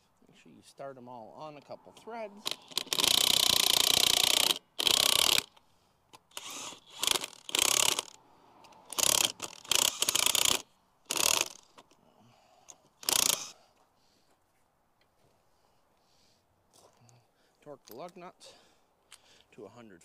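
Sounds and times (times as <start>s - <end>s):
cordless driver spinning lug nuts: 1.9s - 12.0s, 12.7s - 13.6s.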